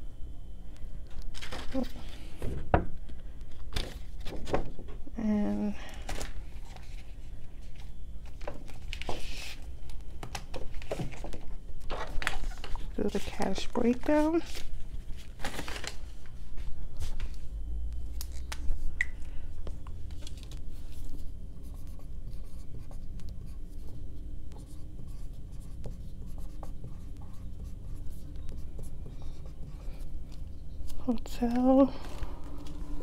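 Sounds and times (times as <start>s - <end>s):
paper rustle: 1.3s - 2.2s, 10.6s - 17.3s
marker writing on plastic-covered paper: 21.6s - 30.1s.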